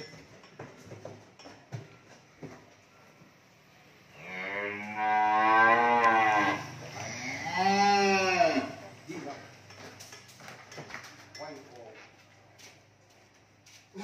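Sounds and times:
cattle mooing: 0:04.1 - 0:08.8.

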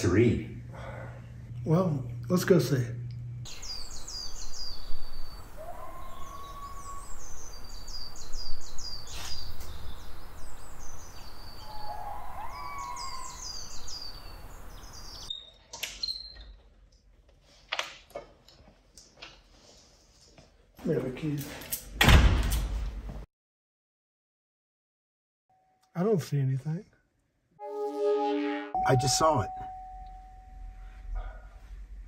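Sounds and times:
small birds chirping: 0:03.5 - 0:16.6.

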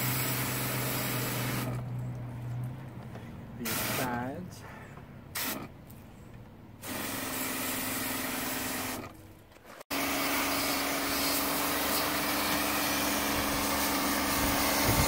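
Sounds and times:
pump motor humming: 0:00.0 - 0:02.3, 0:09.9 - 0:15.0
water spray hissing on plastic: 0:03.6 - 0:04.4, 0:10.2 - 0:15.0.

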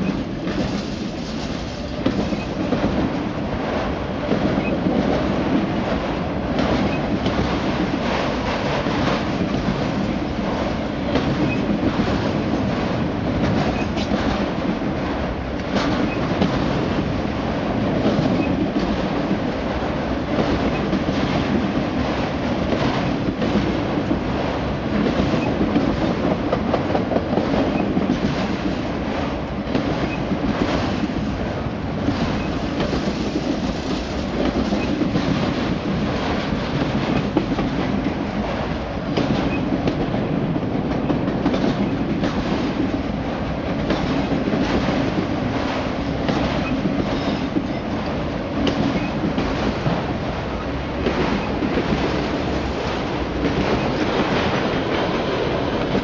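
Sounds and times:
train wheels rumbling on rail: 0:00.0 - 0:56.0
wheels clacking over rail joints: 0:43.8 - 0:50.1.

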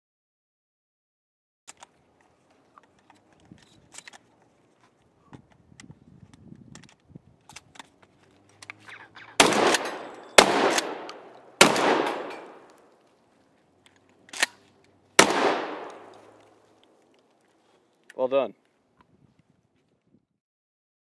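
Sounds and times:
shotgun handling clicks: 0:01.7 - 0:13.1, 0:13.8 - 0:19.1
sharp crack: 0:08.6 - 0:13.0, 0:15.2 - 0:17.4
shotgun shots echoing: 0:09.2 - 0:12.8, 0:15.2 - 0:16.4.

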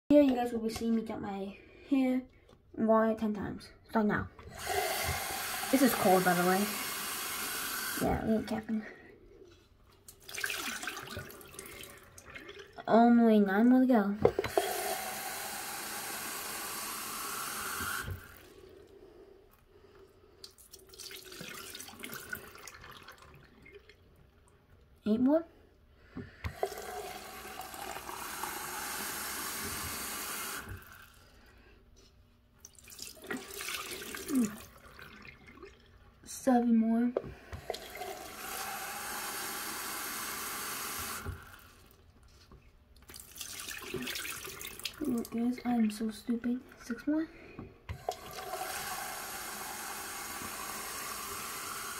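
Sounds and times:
tap water filling container: 0:04.5 - 0:08.6, 0:10.1 - 0:12.9, 0:14.2 - 0:18.6, 0:20.4 - 0:24.3, 0:26.5 - 0:31.2, 0:32.6 - 0:36.1, 0:37.2 - 0:42.0, 0:43.0 - 0:46.0, 0:47.9 - 0:51.9
water dripping: 0:10.0 - 0:12.9, 0:20.4 - 0:24.9, 0:32.6 - 0:36.2, 0:42.9 - 0:46.2.

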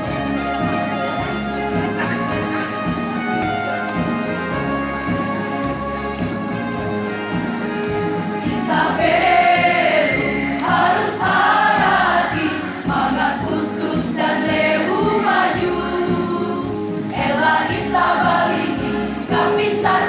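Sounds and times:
choir singing: 0:08.5 - 0:20.0.

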